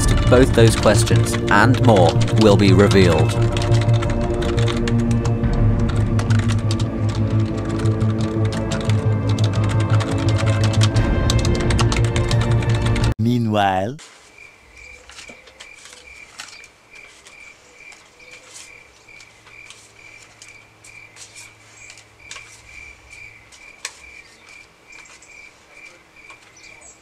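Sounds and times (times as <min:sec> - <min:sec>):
paper banknotes rustling: 0:00.3 - 0:05.4, 0:14.0 - 0:26.6.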